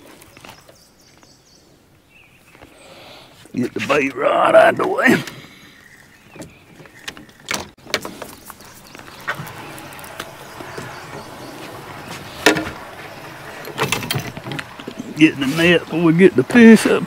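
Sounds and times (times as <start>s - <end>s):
steady rushing sound: 8.5s - 17.0s.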